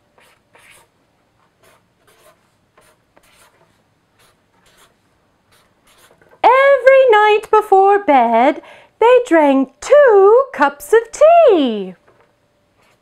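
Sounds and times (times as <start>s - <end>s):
marker pen scratching on board: 0.2s - 0.9s, 1.5s - 6.4s, 12.8s - 13.0s.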